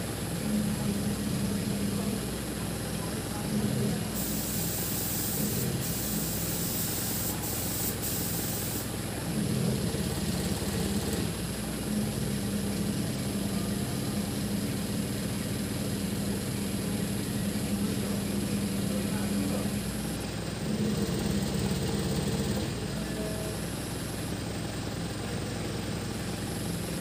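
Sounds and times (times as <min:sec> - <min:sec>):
engine idling: 0:00.0 - 0:27.0
high hiss: 0:04.2 - 0:08.9.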